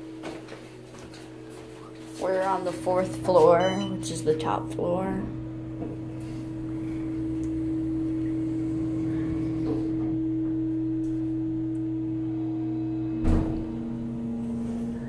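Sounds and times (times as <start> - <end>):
elevator humming: 0.0 - 15.0
loud thump: 13.2 - 13.9.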